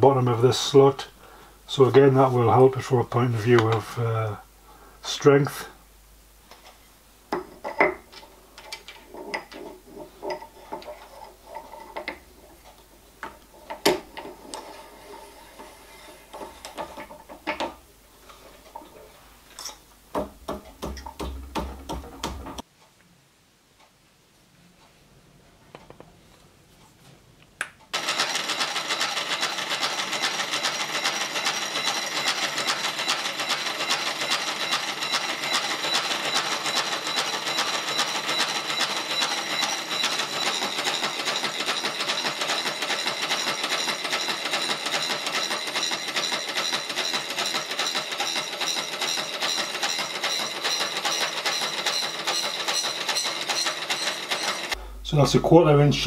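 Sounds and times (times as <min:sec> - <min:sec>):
milling saw cutting metal: 0:28.0 - 0:54.8.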